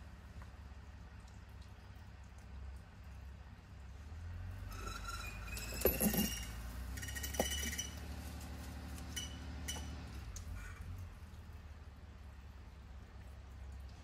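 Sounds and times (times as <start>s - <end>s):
low steady hum: 0.0s - 14.0s
metal rigging clinking: 4.7s - 8.1s.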